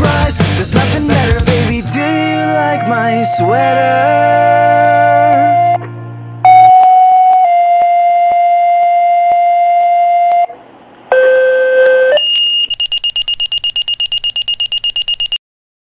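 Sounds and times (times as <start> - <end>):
electronic tones: 2.0 - 15.4
high pulsing beep: 2.9 - 5.8, 6.4 - 10.5, 11.1 - 15.4.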